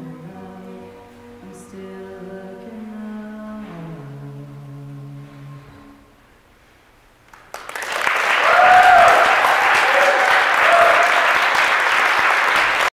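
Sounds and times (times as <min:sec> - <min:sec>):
audience applause: 0:07.3 - 0:13.0
cheering whoops: 0:08.2 - 0:11.9.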